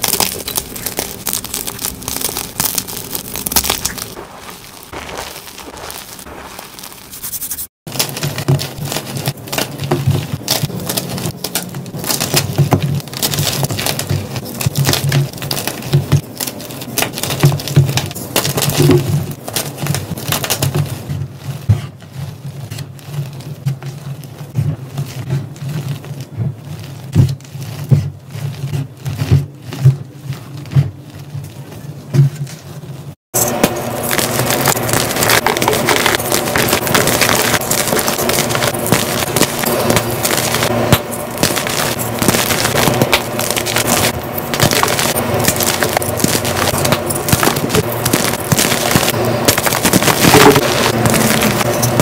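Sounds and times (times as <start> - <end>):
chalk crunching in hands: 0.0 - 17.7.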